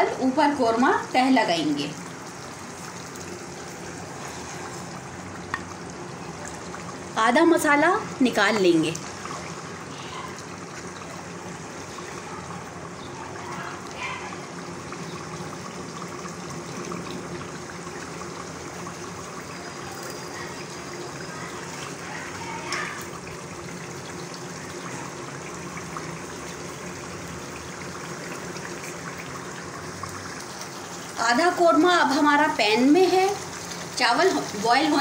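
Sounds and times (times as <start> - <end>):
food simmering and bubbling: 0.0 - 35.0.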